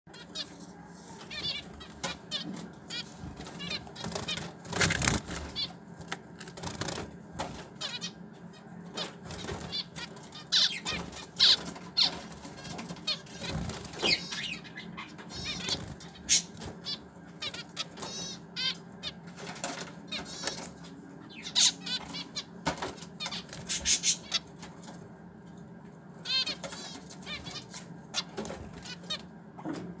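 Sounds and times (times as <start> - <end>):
finches chirping: 0.1 - 24.7, 26.2 - 29.3
wings flapping: 1.1 - 7.9, 9.0 - 14.5
warbled bird trills: 7.7 - 19.2.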